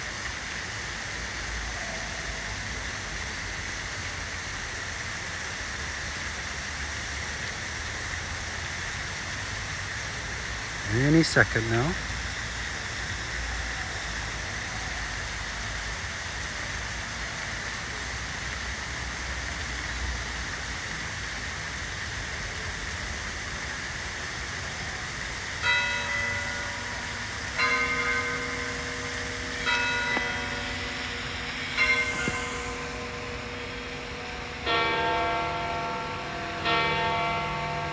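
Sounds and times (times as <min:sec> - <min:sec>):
fountain splashing: 0:00.0 - 0:37.9
church bell tolling: 0:25.6 - 0:37.9.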